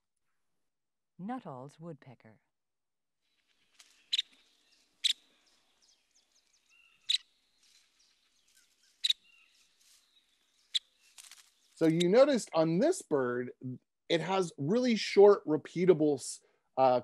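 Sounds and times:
woodpecker calls: 0:03.3 - 0:12.3.

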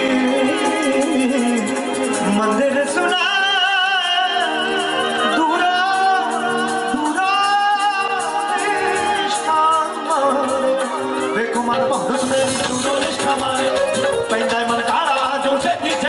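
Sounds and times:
keyboard: 0:00.0 - 0:16.0
man singing devotional song: 0:00.0 - 0:16.0
percussion beat: 0:00.0 - 0:16.0.

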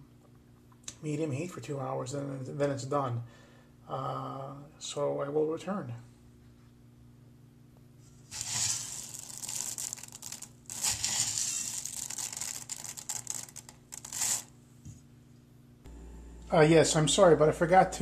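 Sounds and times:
lentils rattling in a metal pot: 0:08.3 - 0:14.5.

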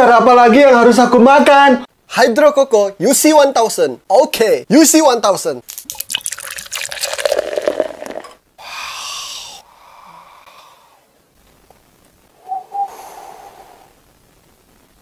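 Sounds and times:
drink pouring into bottle: 0:05.7 - 0:08.4
sucking through a straw: 0:05.9 - 0:09.6.

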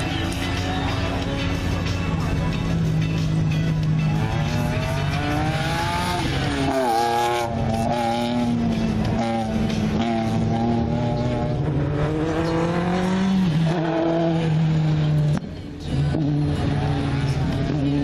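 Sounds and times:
race car engine revving: 0:00.0 - 0:18.0.

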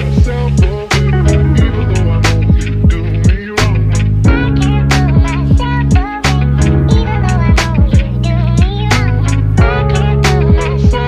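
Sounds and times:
hip-hop beat with deep bass: 0:00.0 - 0:11.0.

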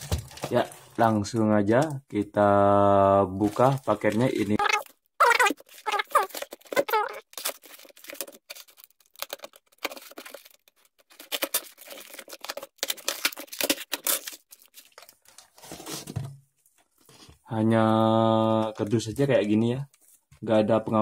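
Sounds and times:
plastic tape crinkling: 0:03.4 - 0:15.5
cardboard ripping: 0:04.6 - 0:16.2.

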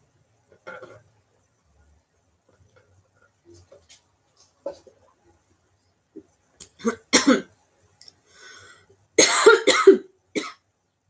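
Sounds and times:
woman coughing hard: 0:06.8 - 0:07.5, 0:09.2 - 0:10.6.

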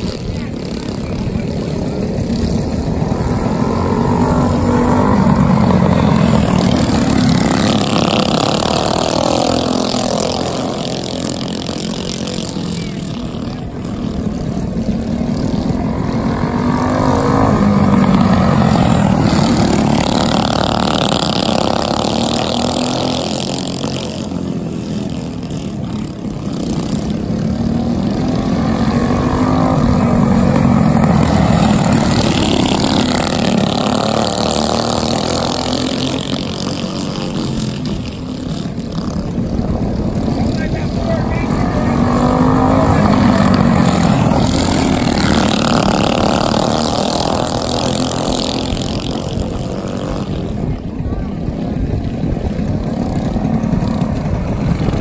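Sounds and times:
racing kart engines: 0:00.0 - 0:55.0.

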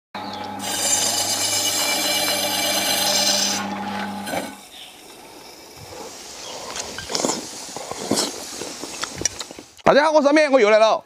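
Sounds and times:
meat slicer motor hum: 0:00.2 - 0:04.6
blade rasping through meat: 0:00.6 - 0:03.7.

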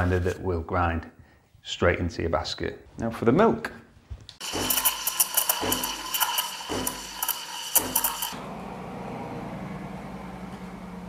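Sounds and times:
steam wand hissing: 0:04.4 - 0:08.4.

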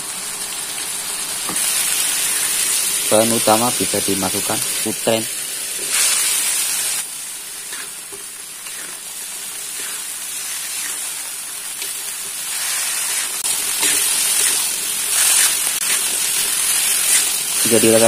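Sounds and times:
food sizzling in a wok: 0:00.0 - 0:18.0
spatula stirring food: 0:07.5 - 0:12.3.

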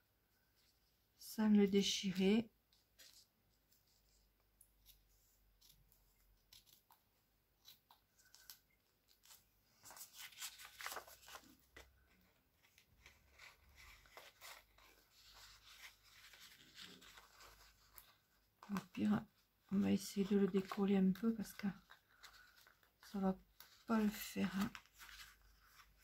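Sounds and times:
paper rustling: 0:02.7 - 0:26.0
scissors snipping paper: 0:04.8 - 0:07.0.

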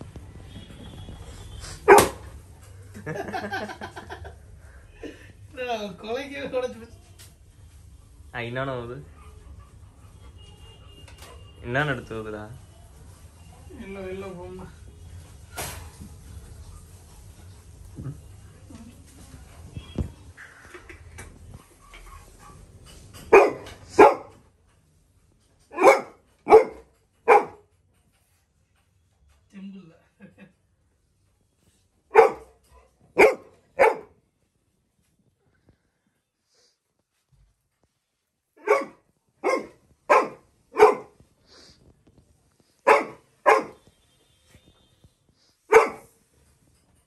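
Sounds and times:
dog barking loudly: 0:01.8 - 0:02.2, 0:23.3 - 0:24.4, 0:25.7 - 0:27.6, 0:32.1 - 0:32.6, 0:33.2 - 0:34.2, 0:38.6 - 0:41.2, 0:42.8 - 0:43.8, 0:45.7 - 0:46.1.

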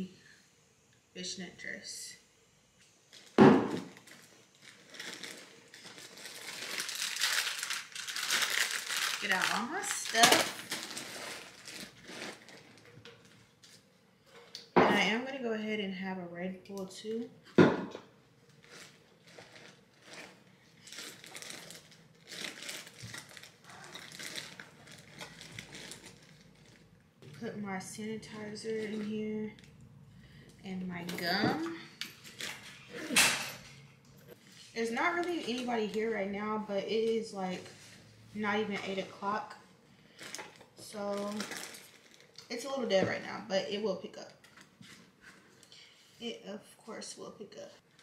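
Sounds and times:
rustling plastic and fabric in bag: 0:03.1 - 0:13.9, 0:18.5 - 0:27.5, 0:34.3 - 0:42.4.

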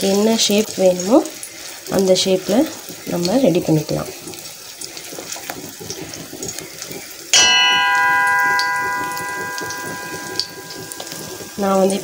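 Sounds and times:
batter frying in oil: 0:00.0 - 0:12.0
metal object ringing bell-like: 0:07.4 - 0:12.0.

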